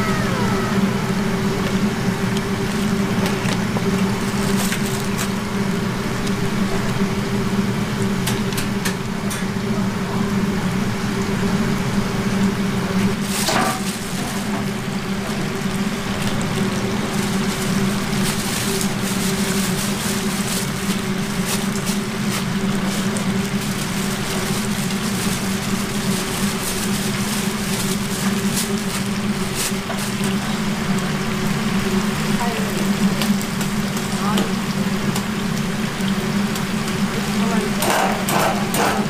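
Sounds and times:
cooking equipment humming: 0:00.0 - 0:39.0.

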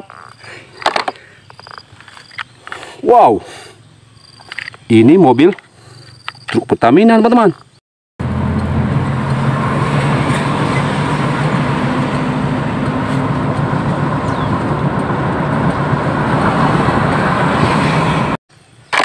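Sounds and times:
tyre and road noise: 0:00.0 - 0:19.0
heavy vehicle engine drone: 0:08.2 - 0:18.4.

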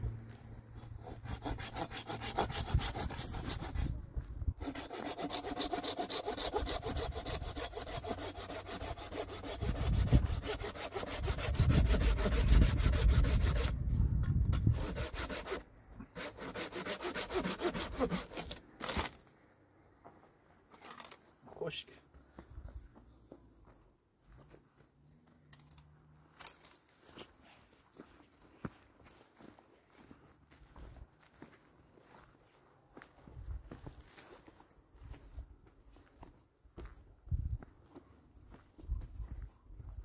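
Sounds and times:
hand saw cutting branch: 0:00.8 - 0:04.0, 0:04.6 - 0:13.8, 0:14.5 - 0:19.2.

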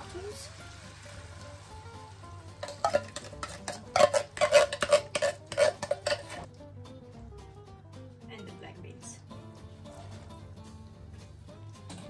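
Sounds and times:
spoon scraping metal tin: 0:02.6 - 0:06.5.

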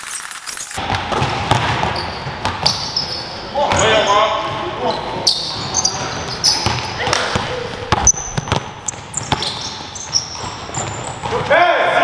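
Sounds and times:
basketball bouncing on gym floor: 0:00.8 - 0:03.0, 0:05.6 - 0:11.6
players' voices: 0:02.8 - 0:12.0.

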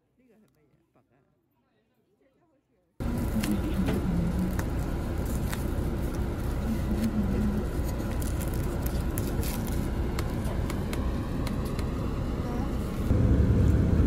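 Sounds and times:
cling film crinkling: 0:03.0 - 0:12.1
vehicle cabin rumble: 0:03.0 - 0:14.0.

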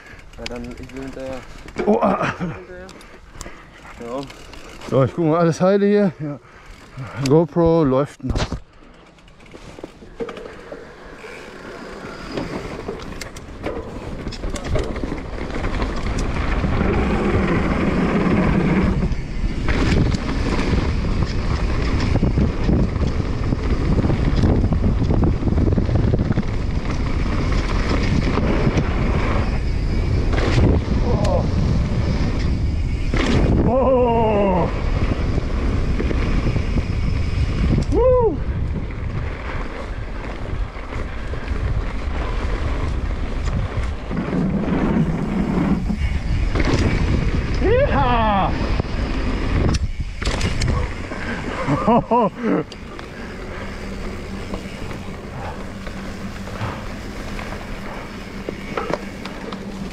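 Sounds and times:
bike clicks and clatters: 0:00.0 - 0:59.9
tyres rumbling on gravel: 0:09.3 - 0:37.8, 0:38.4 - 0:59.9
wind buffeting microphone: 0:12.1 - 0:59.9.

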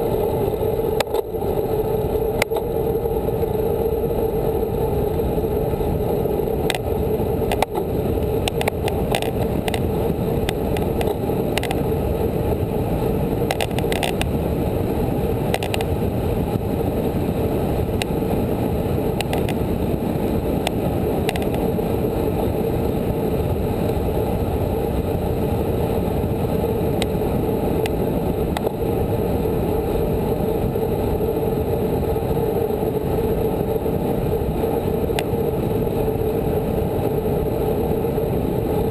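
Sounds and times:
road rumble: 0:00.0 - 0:38.9
wind rush: 0:00.0 - 0:38.9
faint ticks: 0:02.4 - 0:02.7, 0:06.6 - 0:06.9, 0:07.5 - 0:11.8, 0:13.5 - 0:14.3, 0:15.5 - 0:15.9, 0:19.2 - 0:19.6, 0:20.6 - 0:21.6.

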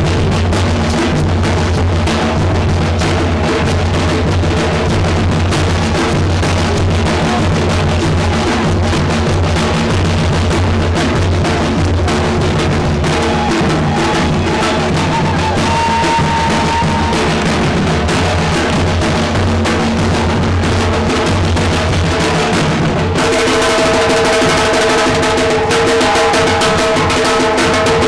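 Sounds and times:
drum ensemble beating: 0:00.0 - 0:28.0.

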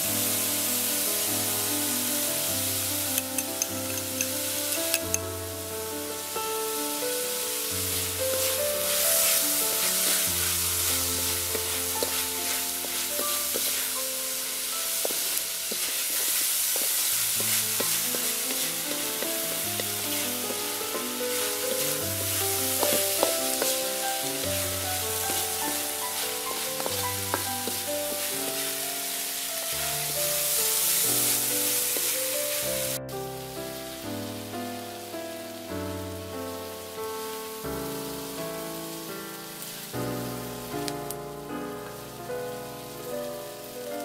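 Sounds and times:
food sizzling in a wok: 0:00.0 - 0:44.0
wooden spatula scraping: 0:07.9 - 0:32.6.

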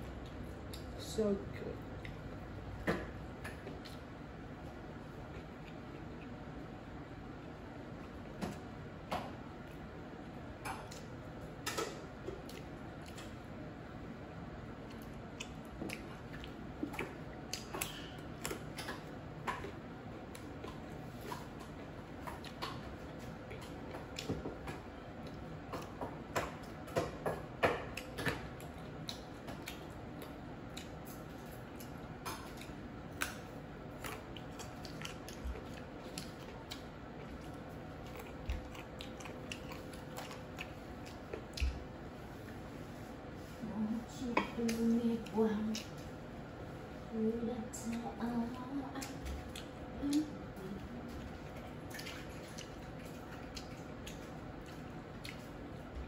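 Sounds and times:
person chewing chicken wings: 0:01.8 - 0:07.1, 0:09.6 - 0:13.6, 0:14.7 - 0:42.7, 0:48.9 - 0:56.0.

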